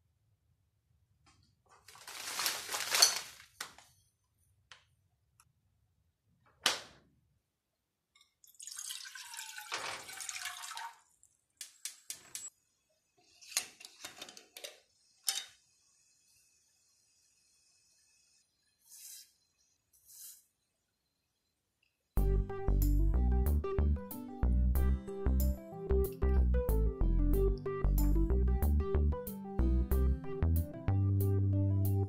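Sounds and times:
rustling at freezer: 0:01.3 - 0:04.2
water pouring into saucepan: 0:08.4 - 0:11.3.

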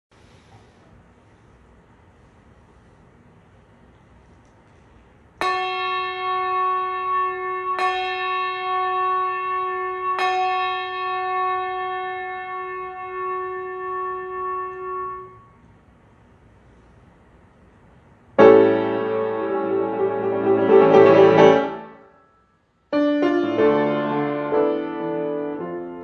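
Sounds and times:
brass handbell ringing: 0:05.4 - 0:15.6.

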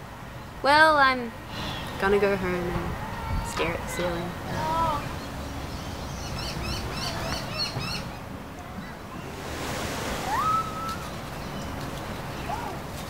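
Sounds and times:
birds calling: 0:01.3 - 0:13.0
whistled note: 0:10.2 - 0:11.1.

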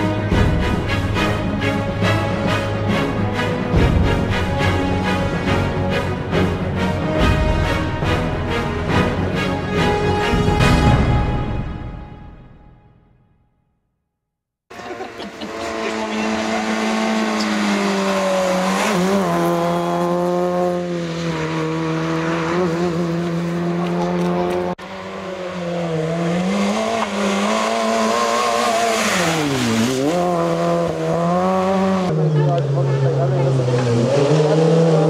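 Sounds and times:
car engine at high revs: 0:14.7 - 0:35.0.

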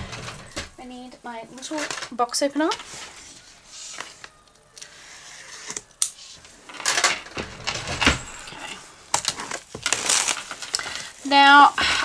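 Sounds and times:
plastic wrap crinkling: 0:08.7 - 0:12.0.

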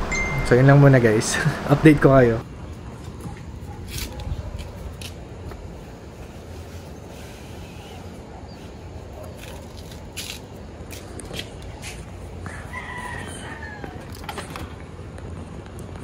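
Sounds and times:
rooster crowing: 0:12.4 - 0:14.3.

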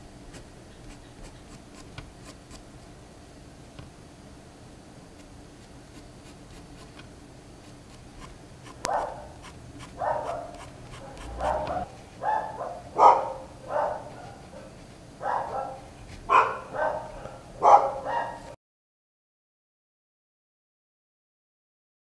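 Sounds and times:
pencil scratching on paper: 0:00.3 - 0:02.6, 0:05.2 - 0:07.0, 0:07.6 - 0:12.3, 0:13.8 - 0:17.5
dog barking: 0:08.8 - 0:18.6.

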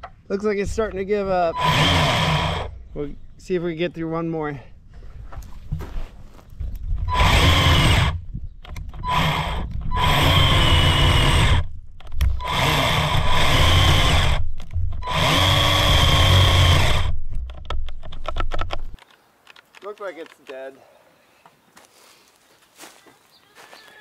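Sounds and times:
electric chainsaw cutting log: 0:01.6 - 0:02.8, 0:07.1 - 0:08.2, 0:09.0 - 0:14.4, 0:15.0 - 0:17.2.

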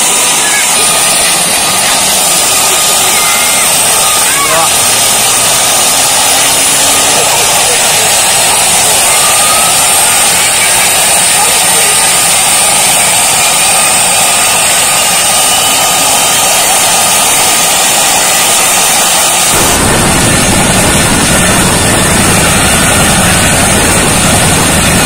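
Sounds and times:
helicopter turbine whine and roar: 0:00.0 - 0:25.0
deeper rumble: 0:19.5 - 0:25.0.

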